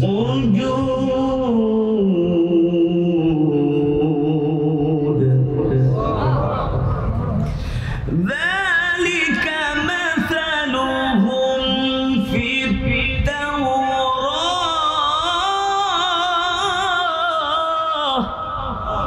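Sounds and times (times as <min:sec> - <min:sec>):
man chanting melodically: 0:00.0 - 0:07.3, 0:08.0 - 0:19.0.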